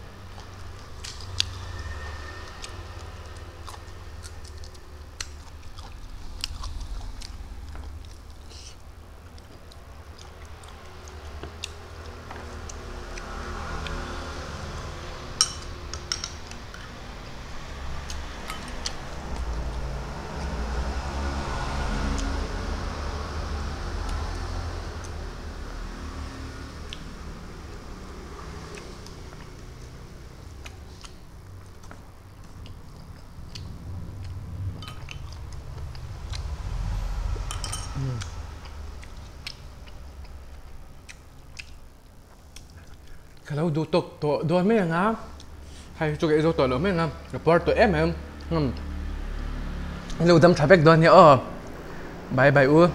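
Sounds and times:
low hum: 0:00.0 - 0:43.5
spoon clinking against glass bowl: 0:15.4 - 0:16.4, 0:37.5 - 0:38.0.

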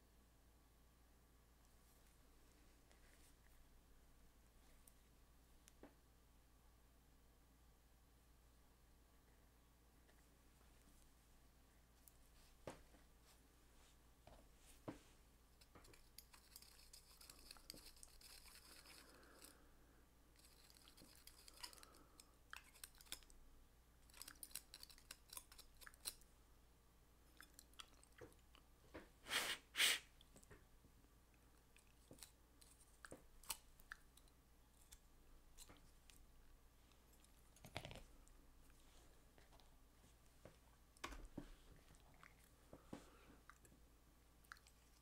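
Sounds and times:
faint metal clicks and scraping: 0:15.6 - 0:19.6, 0:20.3 - 0:23.4.

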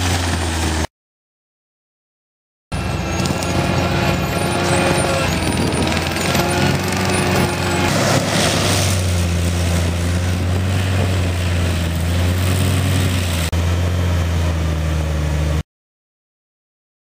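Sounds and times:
mulcher engine droning: 0:00.0 - 0:00.9, 0:02.7 - 0:15.6
rotor head grinding brush: 0:02.7 - 0:13.9.

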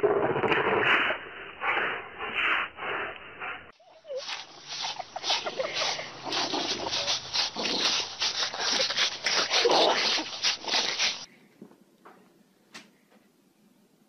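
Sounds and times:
dogs play-fighting and scuffling: 0:04.0 - 0:11.3.

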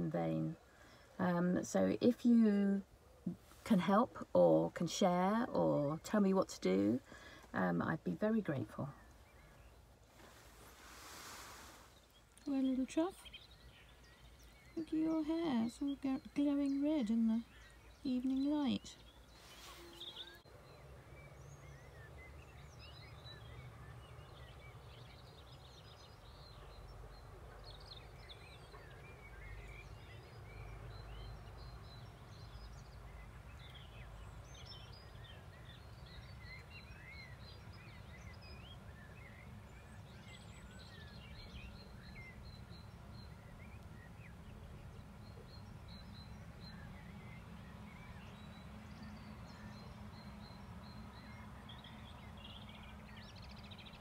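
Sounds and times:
birds chirping and singing: 0:12.0 - 0:54.0.

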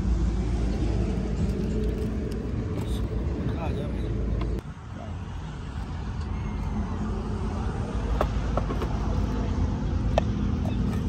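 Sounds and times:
vehicle engine and road noise: 0:00.0 - 0:11.0.

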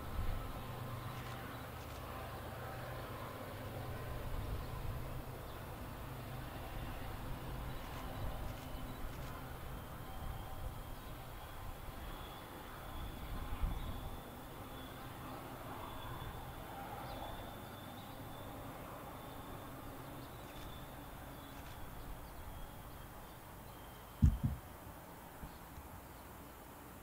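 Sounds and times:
outdoor background noise: 0:00.0 - 0:27.0.

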